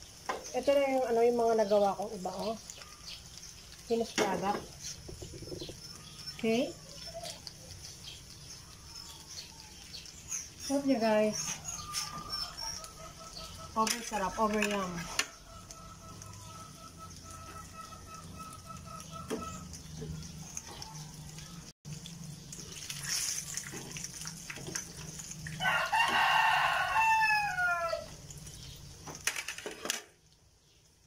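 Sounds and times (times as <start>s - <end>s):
rooster crowing: 11.6s - 19.6s, 25.5s - 28.2s.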